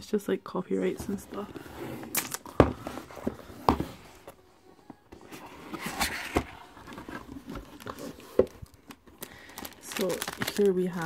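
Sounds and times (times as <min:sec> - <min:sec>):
cardboard rustling and scraping: 0:00.8 - 0:10.7.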